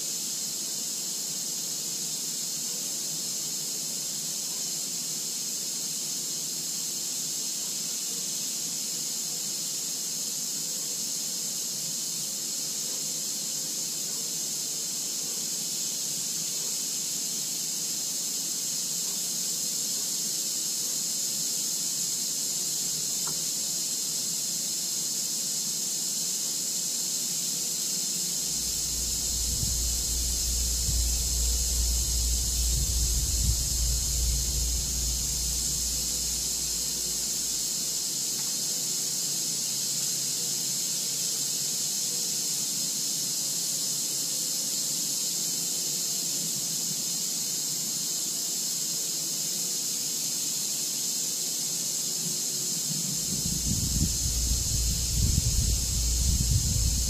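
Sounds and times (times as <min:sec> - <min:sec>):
high-pitched hiss: 0:00.0 - 0:57.0
low rumble: 0:28.5 - 0:37.7, 0:53.3 - 0:57.0.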